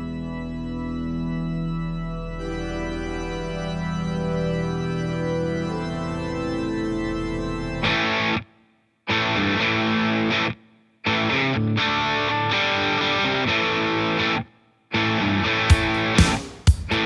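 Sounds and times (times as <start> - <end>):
theme music with held chords: 0.0 - 8.4, 15.6 - 17.0.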